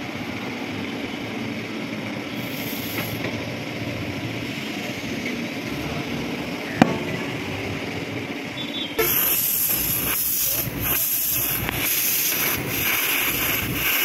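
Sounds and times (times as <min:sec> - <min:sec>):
compressed air hissing into tyre: 0:02.2 - 0:03.6, 0:08.6 - 0:14.0.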